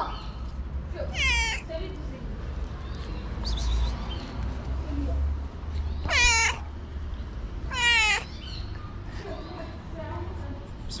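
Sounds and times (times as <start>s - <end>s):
cat meowing: 1.1s - 1.7s, 6.0s - 6.8s, 7.6s - 8.5s.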